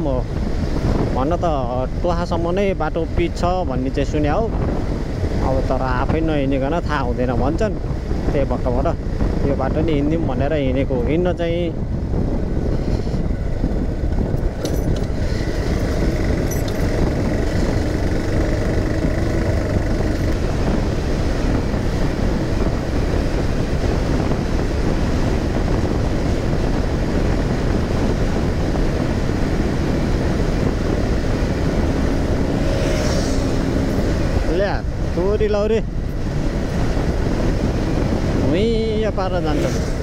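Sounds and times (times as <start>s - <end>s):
wind and road noise: 0.0s - 40.0s
motorcycle engine running: 14.1s - 35.2s.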